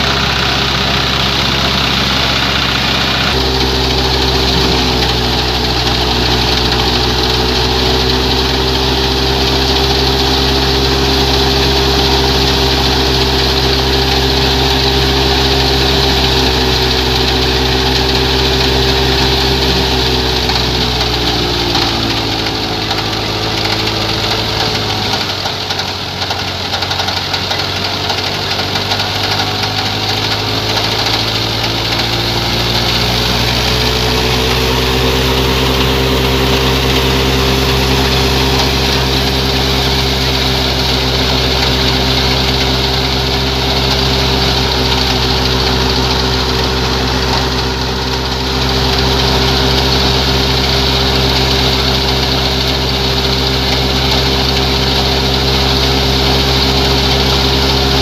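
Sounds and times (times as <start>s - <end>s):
thresher drum and fan whirring: 0.0s - 58.0s
tractor diesel engine under load: 0.0s - 58.0s.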